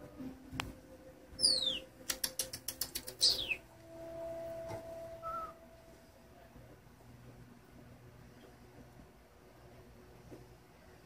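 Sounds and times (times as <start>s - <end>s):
faint chirp: 1.4s - 3.7s
parrot whistling: 1.4s - 5.6s
parrot clicks: 2.0s - 3.5s
parrot steady low tone: 3.3s - 6.7s.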